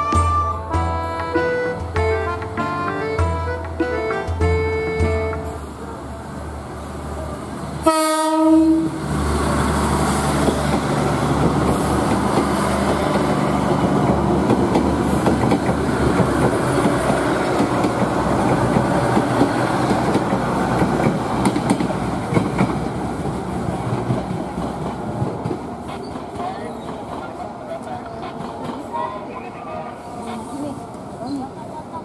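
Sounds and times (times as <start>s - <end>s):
train wheels clattering over rail joints: 10.2s - 27.4s.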